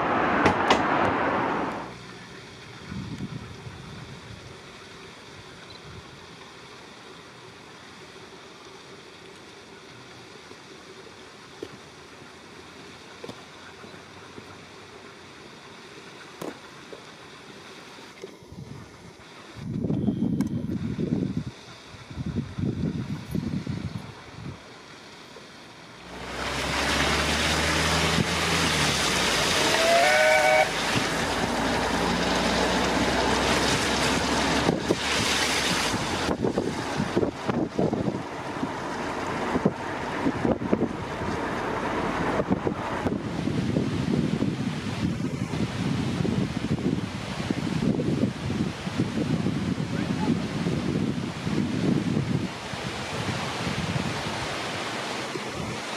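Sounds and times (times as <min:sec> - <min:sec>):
wind and moving car rushing: 0:00.0 - 0:04.6, 0:26.0 - 0:55.9
distant steam train rumbling hiss: 0:00.0 - 0:55.9
chime steam whistle: 0:29.6 - 0:30.8.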